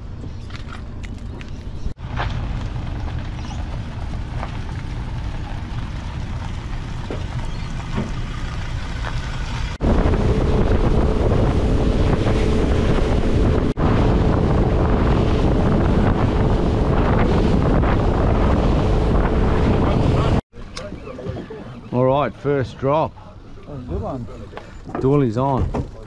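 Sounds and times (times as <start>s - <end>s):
wind rumble on microphone: 0.0s - 22.1s
outboard motor droning: 2.4s - 25.0s
water rushing past hull: 3.8s - 20.4s.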